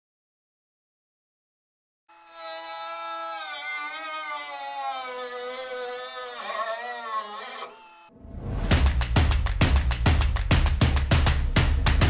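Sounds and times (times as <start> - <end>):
rotary tool cutting steel: 2.1 - 8.1.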